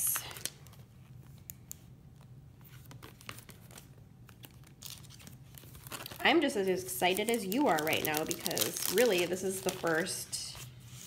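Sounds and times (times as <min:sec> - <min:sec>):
plastic bag crinkling: 0:02.7 - 0:10.7.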